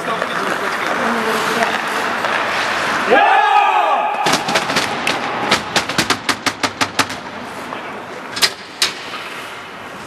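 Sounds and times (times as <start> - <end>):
hockey sticks banging on boards: 4.0 - 7.3, 8.4 - 9.4.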